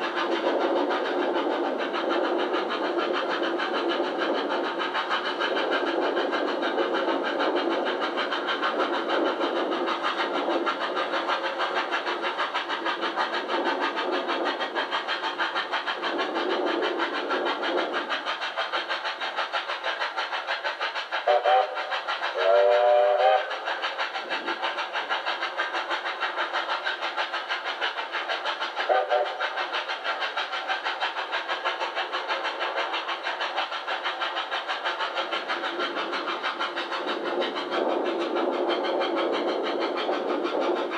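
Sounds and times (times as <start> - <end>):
steam locomotive exhaust beats: 0.0 - 40.9
steam whistle: 21.3 - 21.8, 22.4 - 23.6.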